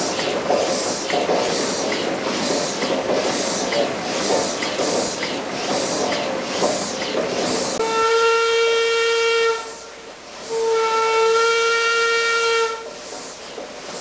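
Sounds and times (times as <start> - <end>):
steam whistle blasts: 7.8 - 12.9.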